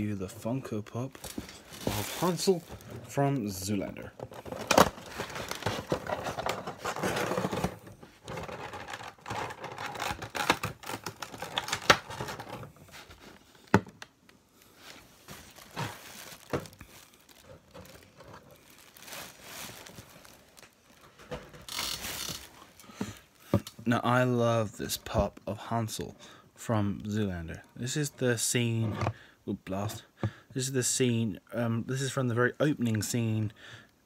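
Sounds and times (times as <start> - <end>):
cardboard and plastic packaging rustling: 0.0 - 23.8.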